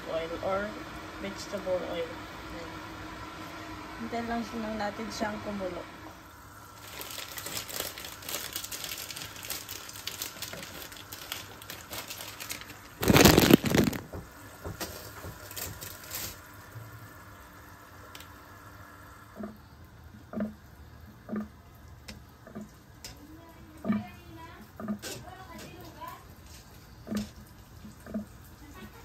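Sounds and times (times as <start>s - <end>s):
water crackling and hissing in pan: 6.2s - 29.0s.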